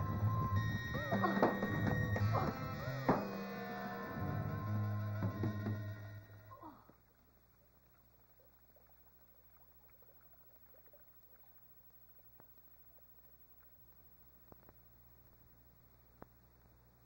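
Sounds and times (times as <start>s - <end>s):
film soundtrack music: 0.0s - 6.6s
faint ticks: 6.9s - 16.9s.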